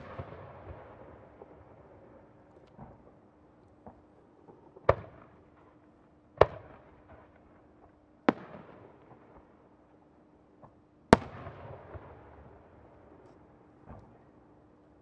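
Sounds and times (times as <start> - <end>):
firework bangs echoing: 0.0 - 1.8, 11.2 - 12.4.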